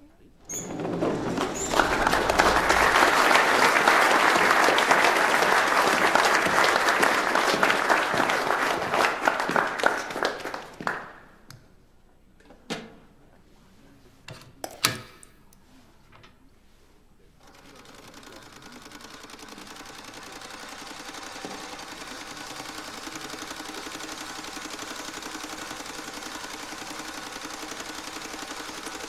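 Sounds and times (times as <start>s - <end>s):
knocks: 0.5s - 4.6s
people applauding: 0.5s - 11.4s, 17.6s - 29.0s.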